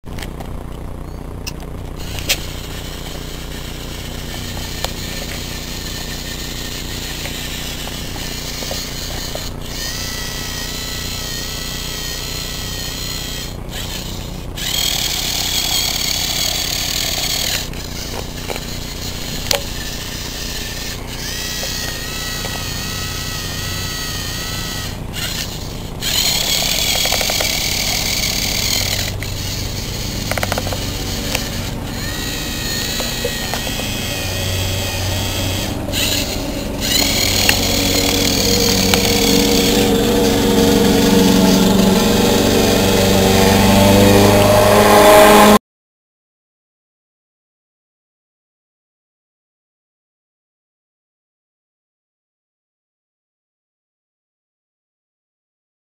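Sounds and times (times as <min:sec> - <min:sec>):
servo motors whirring: 0:00.1 - 0:45.6
sharp clicks: 0:01.4 - 0:40.0.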